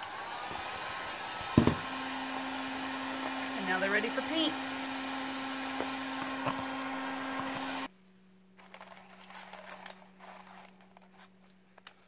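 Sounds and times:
heat gun blowing: 0.0s - 7.9s
plastic shells rustling on paper: 8.6s - 12.0s.

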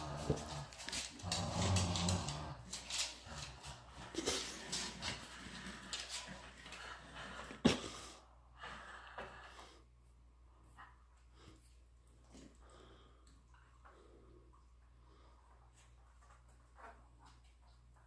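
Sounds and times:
dog growling: 0.0s - 7.5s.

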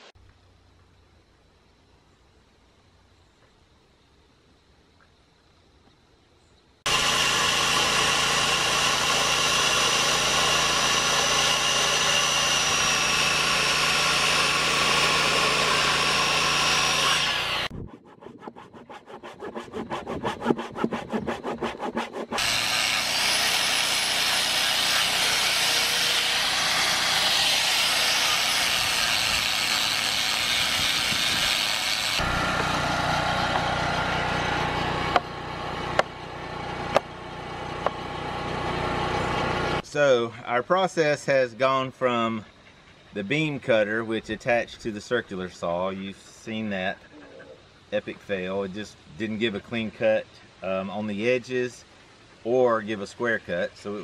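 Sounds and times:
power tool running: 6.9s - 17.7s, 19.2s - 39.8s
handsaw strokes: 6.9s - 33.7s
circular saw cutting timber: 6.9s - 40.2s.

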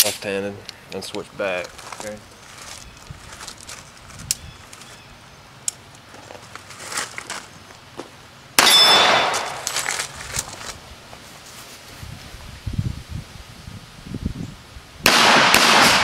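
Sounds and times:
footsteps: 1.1s - 5.0s, 6.0s - 8.2s, 9.2s - 12.3s
metallic ring of steel target: 8.6s - 9.6s
pistol shot: 8.6s - 9.7s, 15.0s - 16.0s.

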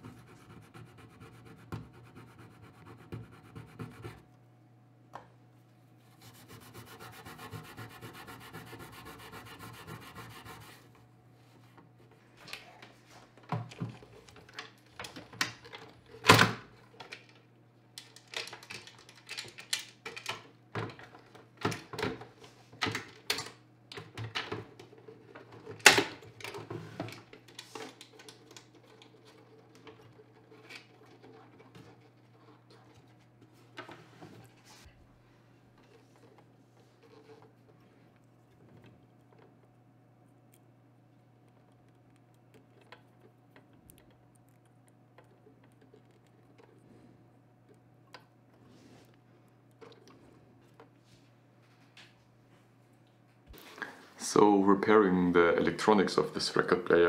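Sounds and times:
cloth rubbing wax on wood: 6.2s - 10.8s.

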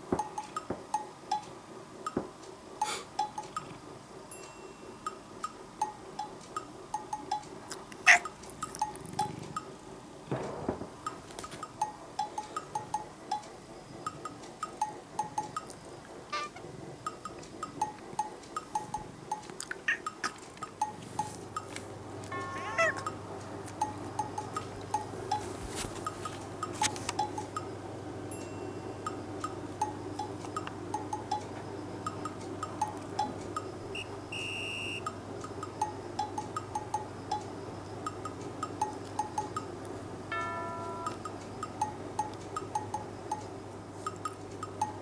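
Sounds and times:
bouncy plinking percussion music: 40.3s - 43.4s.

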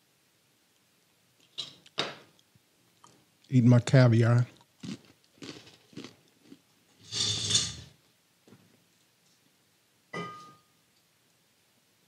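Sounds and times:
glass bottles scraping: 7.0s - 7.9s
glass bottle knock with ringing: 10.2s - 10.6s.

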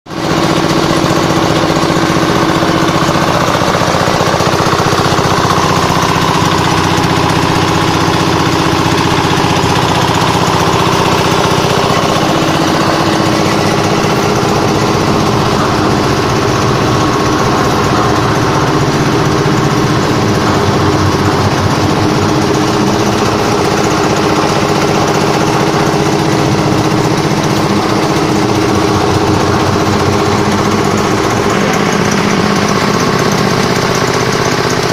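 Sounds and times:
stationary engine running: 0.1s - 34.9s.

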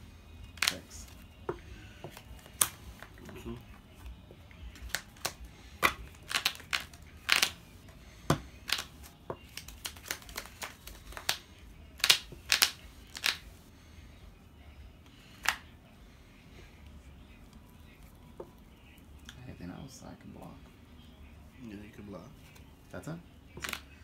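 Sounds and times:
trading cards snapping and clicking: 0.5s - 1.2s, 2.0s - 3.4s, 4.7s - 7.6s, 8.3s - 13.5s, 15.4s - 15.7s, 23.6s - 23.9s.

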